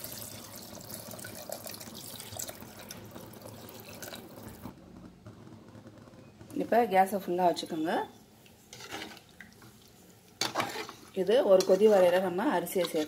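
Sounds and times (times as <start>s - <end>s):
water pouring and splashing: 0.0s - 4.7s.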